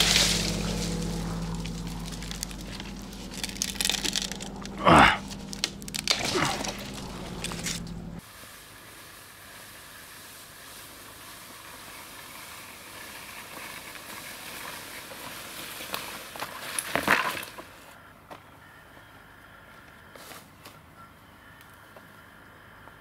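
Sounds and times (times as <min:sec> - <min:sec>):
branches rustling and crackling: 0:00.0 - 0:18.0.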